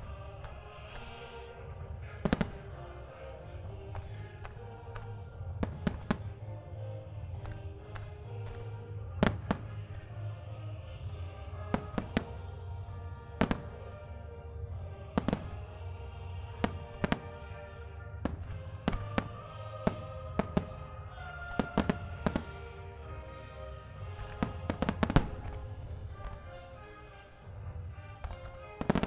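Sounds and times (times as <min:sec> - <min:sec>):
music playing: 0:00.0 - 0:29.0
fireworks bangs: 0:01.8 - 0:02.9, 0:03.6 - 0:06.4, 0:07.3 - 0:10.2, 0:11.0 - 0:12.6, 0:13.3 - 0:14.0, 0:15.0 - 0:26.7, 0:28.2 - 0:29.0.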